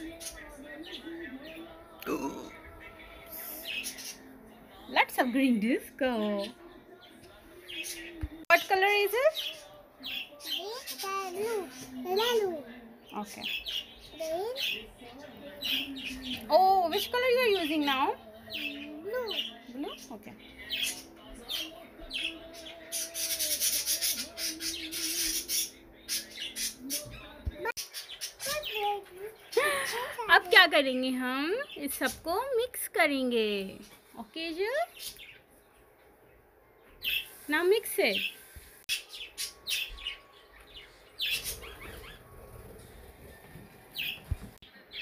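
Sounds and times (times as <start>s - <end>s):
small bird chirping: 38.0s - 42.7s.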